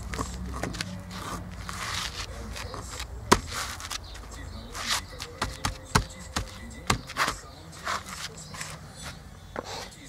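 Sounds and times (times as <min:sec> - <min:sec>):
paving slab scraping on sand: 0:00.1 - 0:04.0, 0:04.7 - 0:05.7, 0:07.1 - 0:09.9.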